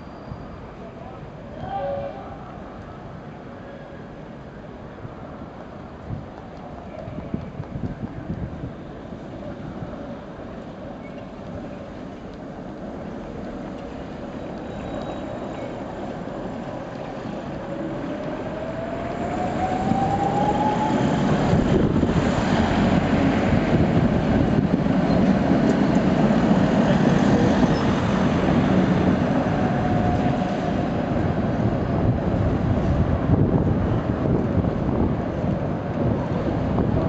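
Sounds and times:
tram rumbling on rails: 0.0s - 37.0s
tram whine: 6.7s - 37.0s.

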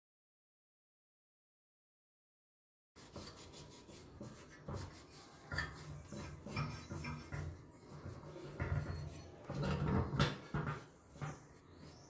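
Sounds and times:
cloth rubbing on sheet metal: 3.0s - 12.0s.

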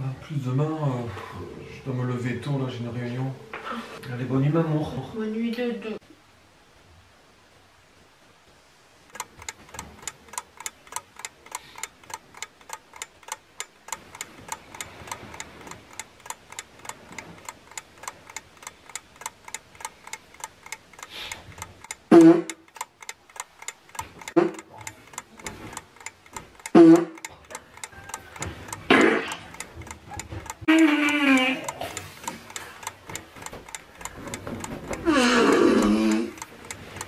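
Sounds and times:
clock ticking: 9.1s - 37.0s.

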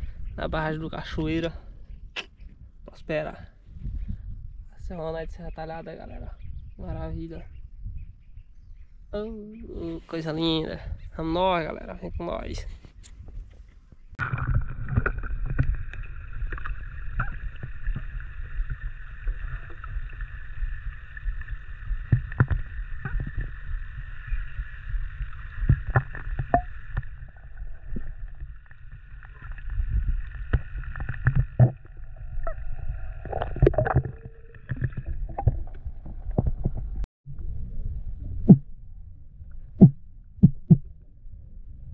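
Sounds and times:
underwater rumble of moving water: 14.0s - 41.9s.

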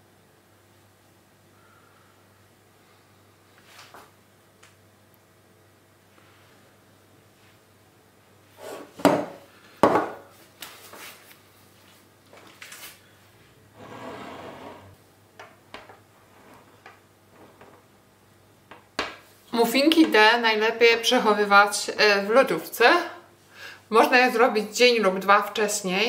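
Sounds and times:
short scrape: 13.8s - 15.0s.

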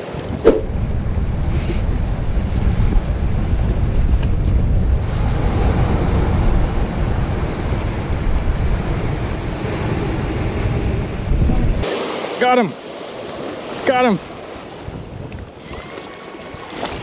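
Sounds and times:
wind rumbling on microphone: 0.1s - 11.8s.

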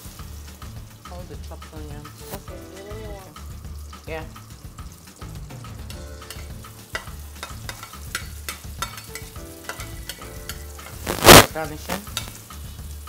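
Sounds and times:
onions sizzling in oil: 0.0s - 13.0s
spatula scraping a pan: 6.3s - 12.7s.

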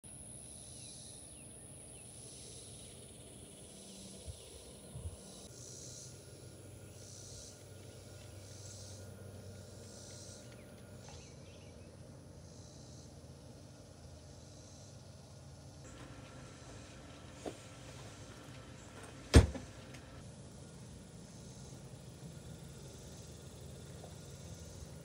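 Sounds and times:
insects calling in pulses: 0.1s - 25.0s
low steady hum: 0.1s - 25.0s.

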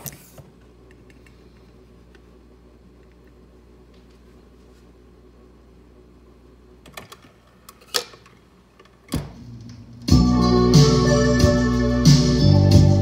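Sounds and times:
record music playing: 9.2s - 13.0s.

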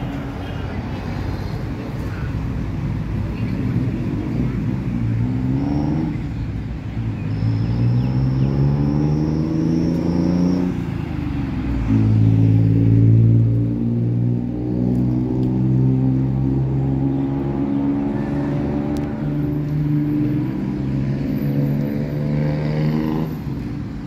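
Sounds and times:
vehicle engines passing: 0.0s - 24.0s.

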